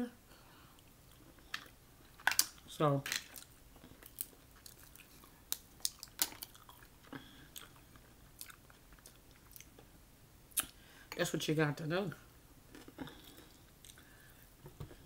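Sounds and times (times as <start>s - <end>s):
wet mouth clicks and smacks: 3.2s - 6.9s, 10.5s - 10.8s
chewing: 3.2s - 9.8s, 12.7s - 14.1s.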